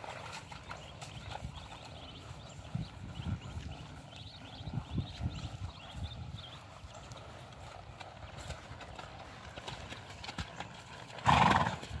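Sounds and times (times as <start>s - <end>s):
horse hooves walking on grass: 0.0s - 12.0s
horse snorting: 11.0s - 12.0s.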